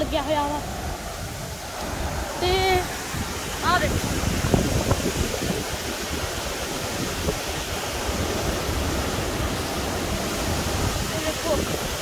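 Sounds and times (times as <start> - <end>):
river water rushing: 0.0 - 12.0
wind on microphone: 0.0 - 12.0.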